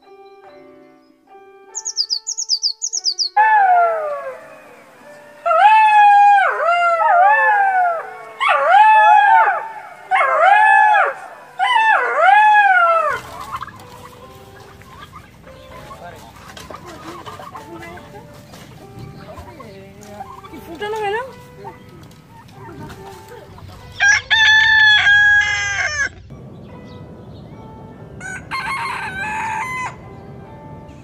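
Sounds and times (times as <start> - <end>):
bird chirps: 0.2 - 3.4
fox wailing cries: 5.4 - 13.4.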